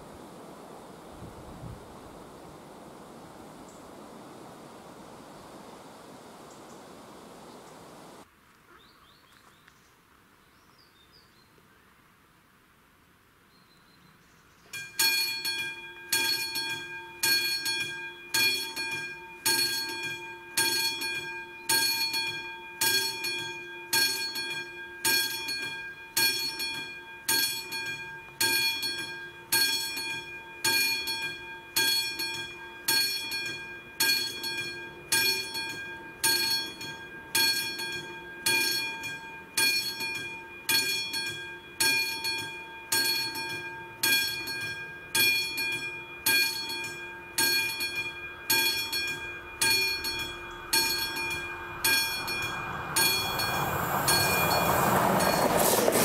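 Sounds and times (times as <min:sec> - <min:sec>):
level crossing bell ringing: 0:14.8 - 0:56.0.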